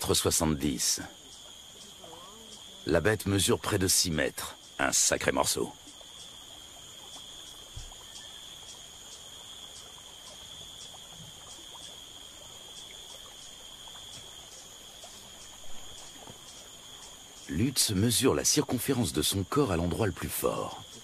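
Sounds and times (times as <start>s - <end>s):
insects buzzing and trilling: 0.0s - 21.0s
soft low thump: 7.7s - 8.0s.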